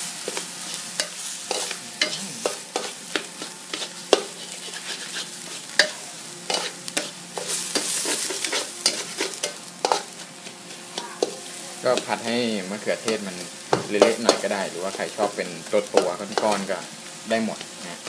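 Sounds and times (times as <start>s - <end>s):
food sizzling in a pan: 0.0s - 18.0s
spatula scraping a metal pan: 0.7s - 11.4s.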